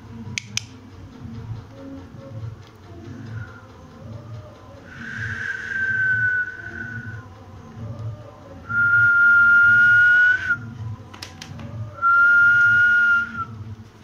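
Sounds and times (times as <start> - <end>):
person whistling long notes: 4.9 - 7.2, 8.7 - 10.7, 12.0 - 13.6.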